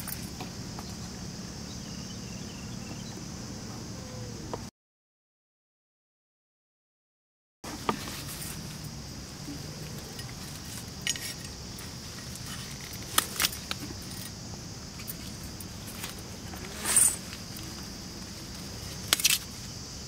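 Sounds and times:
insect drone: 0.0 - 4.7, 7.7 - 20.0
leaves rustling: 7.7 - 20.0
knife cutting leaves: 15.8 - 19.6.

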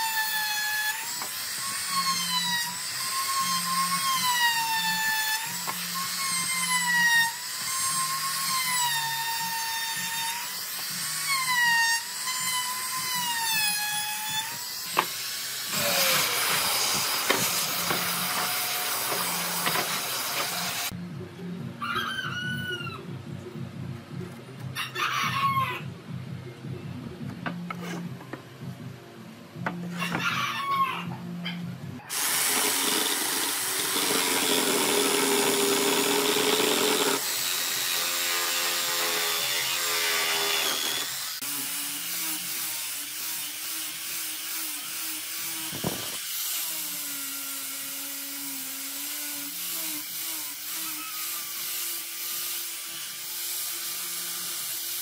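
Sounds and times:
jigsaw cutting wood: 14.9 - 20.9, 32.1 - 55.0
rooster crowing: 21.8 - 23.0, 24.8 - 25.9, 29.9 - 31.3.

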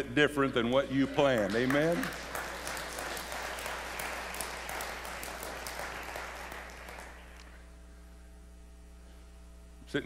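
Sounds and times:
congregation applauding: 0.7 - 7.5.

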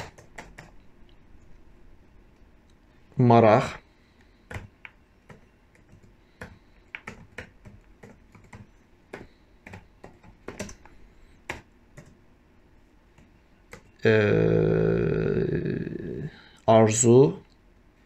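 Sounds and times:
typing on computer keyboard: 0.0 - 0.8, 4.5 - 12.2, 13.2 - 13.9.

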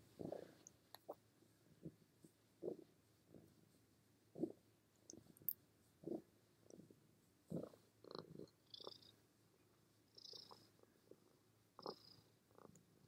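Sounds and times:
cat purring: 0.0 - 13.0.

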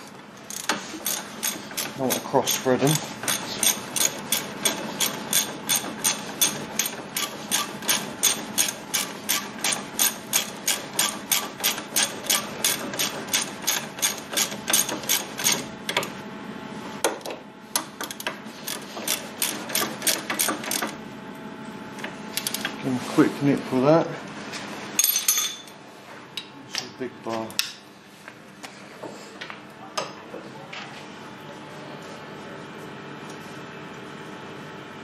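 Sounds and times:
ratchet wrench clicking: 3.3 - 15.6.

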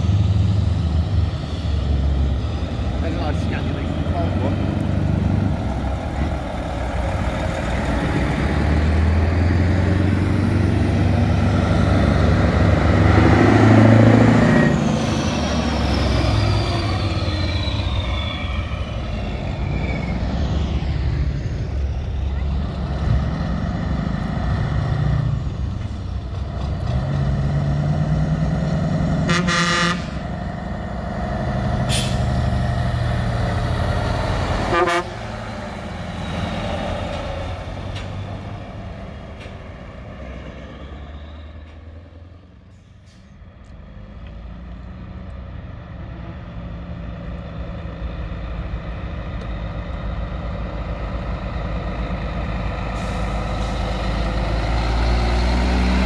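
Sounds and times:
diesel lorry engines revving: 0.0 - 56.0
horn toots: 29.2 - 30.2, 34.6 - 35.3.

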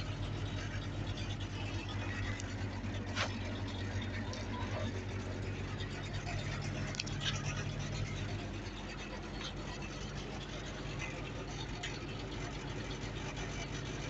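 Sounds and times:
engine idling with low hum: 0.0 - 14.0
handling scratches and clicks: 5.7 - 9.9.

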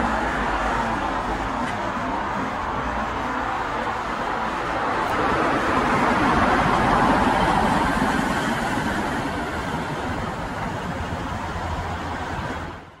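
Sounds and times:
continuous rushing rumble: 0.0 - 13.0.

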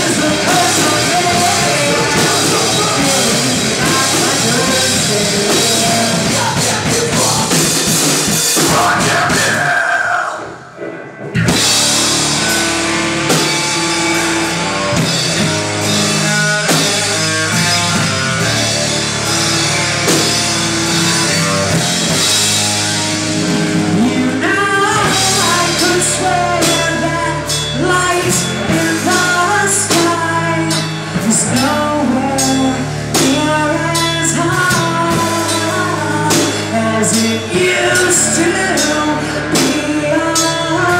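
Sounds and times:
person singing: 0.0 - 7.9, 8.5 - 11.2, 23.7 - 40.9
heavy metal band playing: 0.0 - 40.9.

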